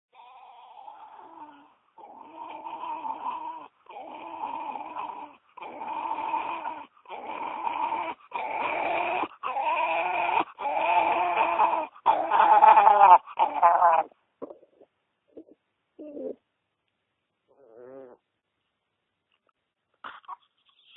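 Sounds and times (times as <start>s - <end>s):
small dog drawn-out calls: 0.1s - 14.1s.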